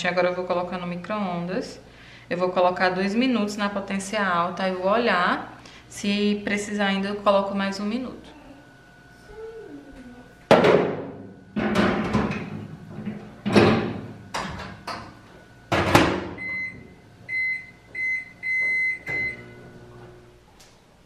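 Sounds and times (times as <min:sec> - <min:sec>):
microwave oven humming: 0:00.0 - 0:21.0
microwave keypad beeps: 0:16.4 - 0:19.6.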